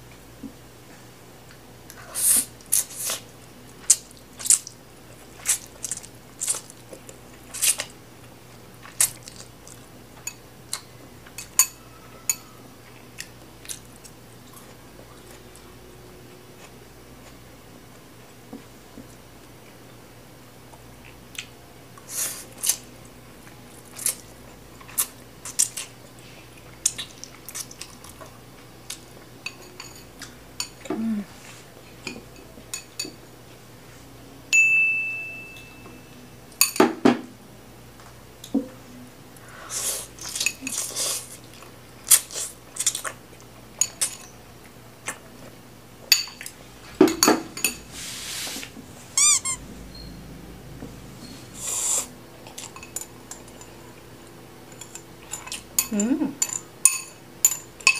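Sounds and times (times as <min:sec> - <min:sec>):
slurping and chewing: 0:39.4 - 0:43.5, 0:51.4 - 0:52.8
utensils clinking on glass bowl: 0:52.5 - 0:53.8, 0:54.7 - 0:57.9.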